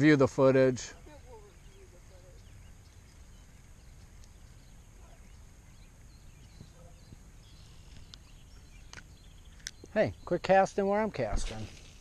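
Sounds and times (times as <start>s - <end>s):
faint bird chirps: 0.8s - 10.6s.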